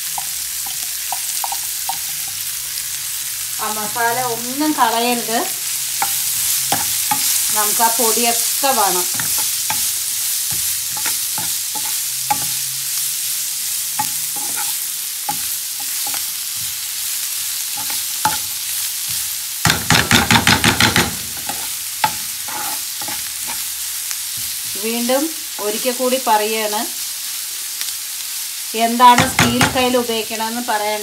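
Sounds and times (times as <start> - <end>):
onions sizzling in oil: 0.0 - 31.0
spatula scraping a pan: 14.0 - 16.8, 20.9 - 23.8.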